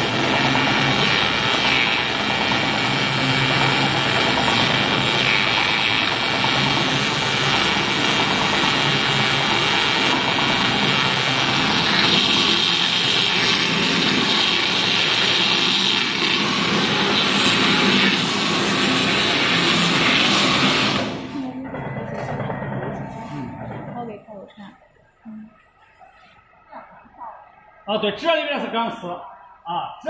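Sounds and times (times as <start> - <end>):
tyre strip cutter running: 0.0 - 23.1.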